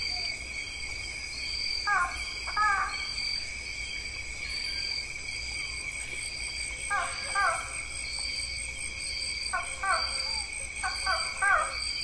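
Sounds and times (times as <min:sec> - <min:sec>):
insect chirps: 0:00.0 - 0:12.0
insect drone: 0:00.0 - 0:12.0
animal calls: 0:06.9 - 0:07.9, 0:09.5 - 0:11.9.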